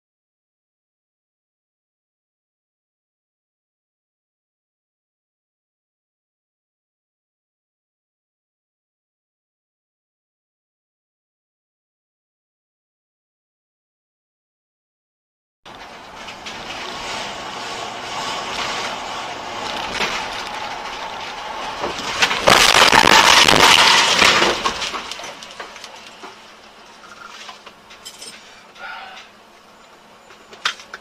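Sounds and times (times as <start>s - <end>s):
road and engine noise: 15.7s - 31.0s
car crash with breaking: 15.8s - 26.5s.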